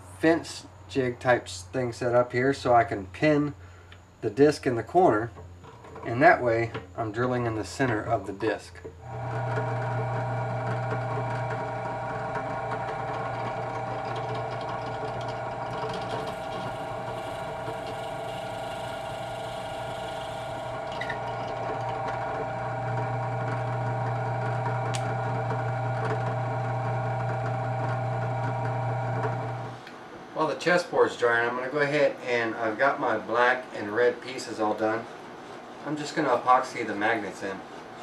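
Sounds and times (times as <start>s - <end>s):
drill press motor hum: 8.9s - 29.8s
drill bit cutting wood: 9.0s - 29.8s.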